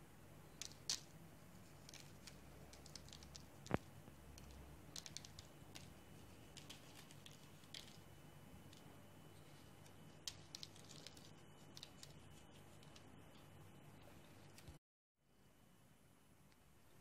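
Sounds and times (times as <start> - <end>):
seeds ticking on baking tray: 0.5 - 9.0, 9.8 - 13.5.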